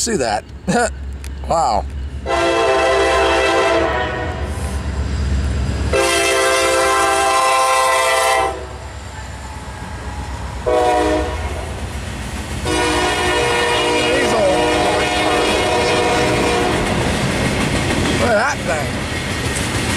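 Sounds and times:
freight train rumbling: 0.0 - 19.9
locomotive air horn blasts: 2.2 - 4.6, 5.9 - 8.9, 10.6 - 11.7, 12.6 - 16.9.

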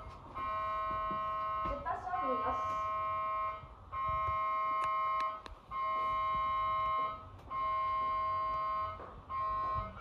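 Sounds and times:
electronic warning ring: 0.0 - 10.0.

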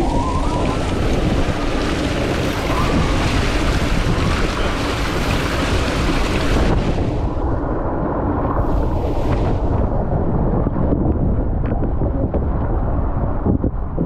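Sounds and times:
water rushing down slide: 0.0 - 10.6
wind noise on microphone: 0.0 - 14.0.

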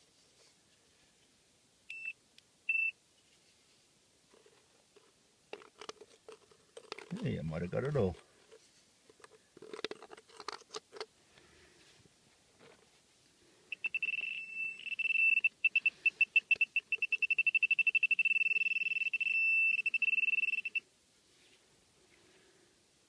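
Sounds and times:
metal detector beeping: 1.9 - 2.9, 13.7 - 20.8.

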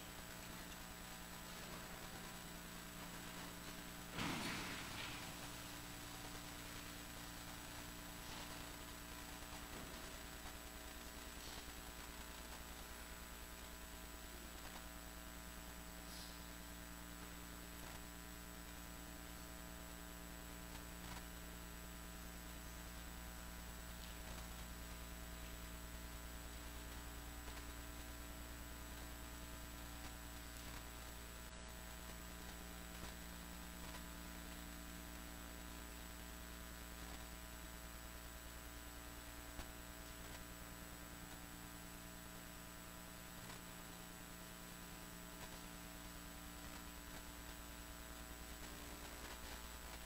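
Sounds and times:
faint hiss: 0.0 - 13.7, 15.5 - 18.0
electrical mains hum: 0.0 - 50.0.

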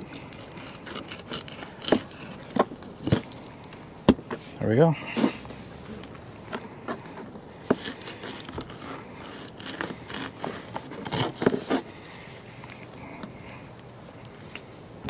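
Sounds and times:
knife scraping fish fillet: 0.0 - 3.4, 6.8 - 12.0.

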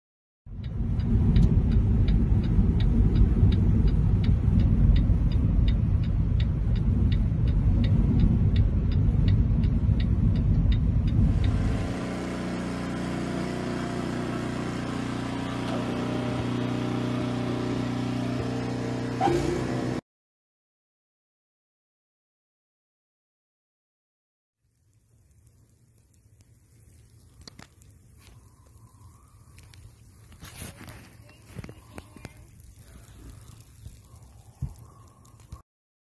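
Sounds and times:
regular sharp tick: 0.5 - 12.1, 24.7 - 30.4
car road and engine rumble: 0.5 - 20.0.

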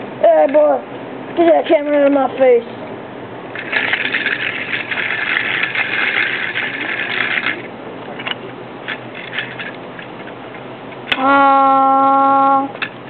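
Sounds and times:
toy car rolling on concrete: 3.5 - 10.4.

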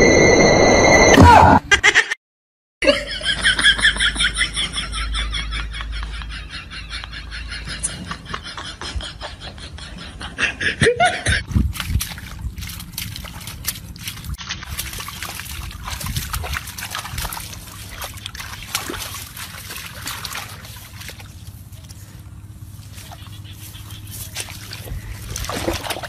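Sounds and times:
dog digging in wet mud: 11.5 - 26.0
mud sloshing and splattering: 11.5 - 26.0.

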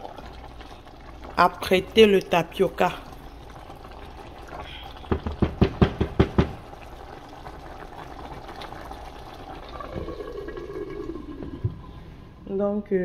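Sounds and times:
stew bubbling: 0.0 - 12.5
spatula knocking on pot rim: 5.1 - 6.6.

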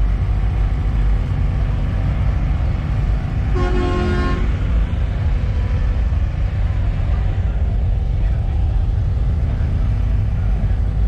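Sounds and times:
low vehicle rumble: 0.0 - 11.0
vehicle horn blowing: 3.5 - 4.5.

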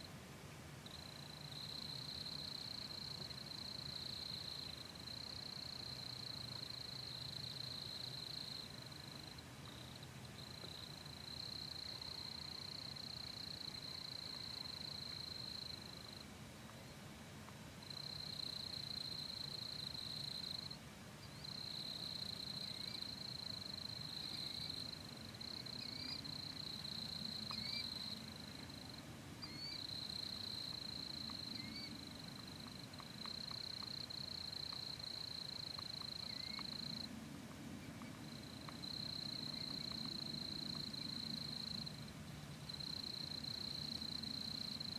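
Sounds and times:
insects trilling: 17.9 - 37.1, 38.0 - 42.0.

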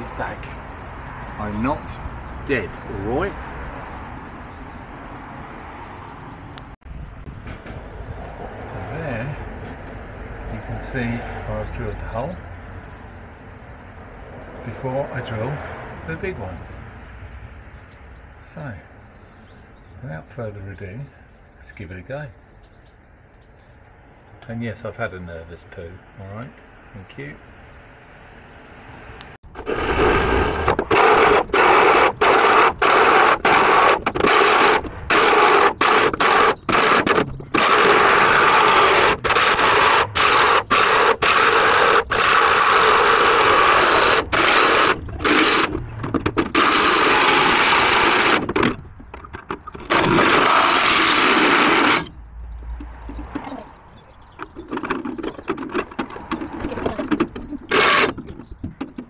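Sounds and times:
hole saw grinding through metal: 29.5 - 48.8, 49.5 - 52.2, 54.4 - 58.8.

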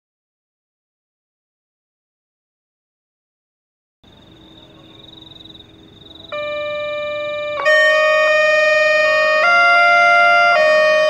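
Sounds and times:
high warbling crossing alarm: 4.1 - 11.0
electronic siren tone: 6.2 - 11.0.

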